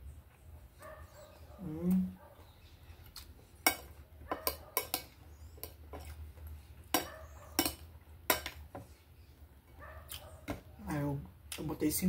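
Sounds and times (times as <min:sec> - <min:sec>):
cutlery clinking on a plate: 0:03.6 - 0:06.1, 0:06.9 - 0:08.6.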